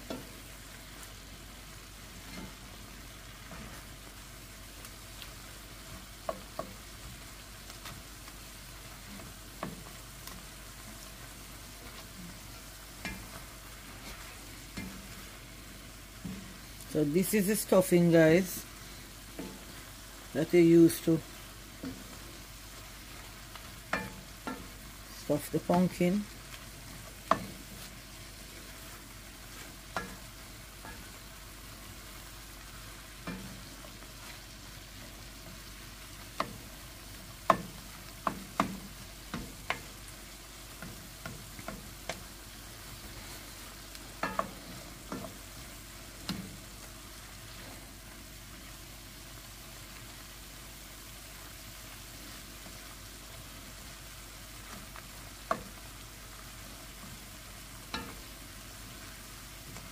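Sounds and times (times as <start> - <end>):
faint sizzle: 0.0 - 59.9
spatula scraping frying pan: 11.4 - 16.8, 36.3 - 46.7.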